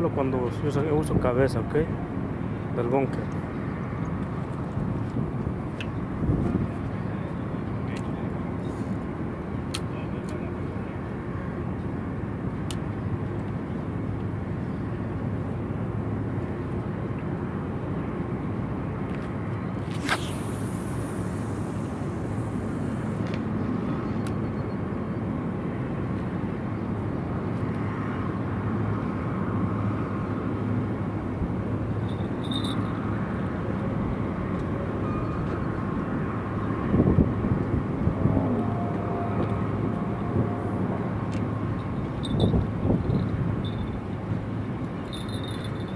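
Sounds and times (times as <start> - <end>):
low outdoor rumble: 18.7 - 24.4, 35.7 - 45.9
faint hum: 19.6 - 24.8.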